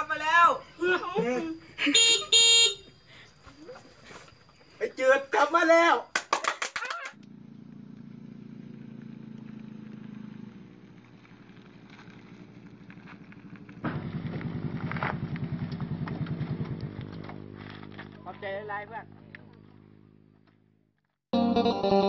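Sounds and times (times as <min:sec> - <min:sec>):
small motorcycle engine running: 0:07.2 - 0:20.8
noisy clatter: 0:11.4 - 0:18.2.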